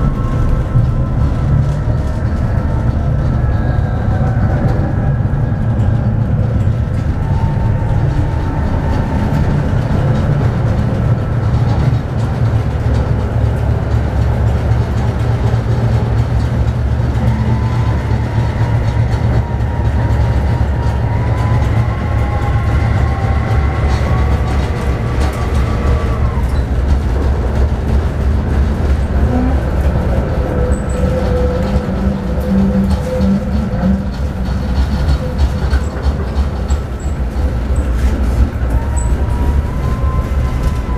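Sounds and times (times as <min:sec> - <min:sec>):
tram wheels and motors rumbling: 0:00.0 - 0:40.9.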